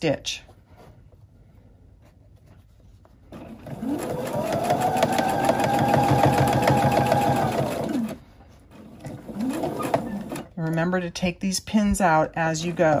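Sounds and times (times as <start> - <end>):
sewing machine stitching: 3.3 - 10.6.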